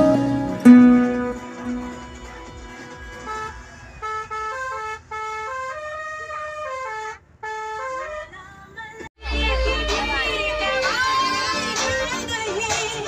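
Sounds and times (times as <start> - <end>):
vehicle musical horn tune: 0.0 - 2.3, 3.1 - 8.4.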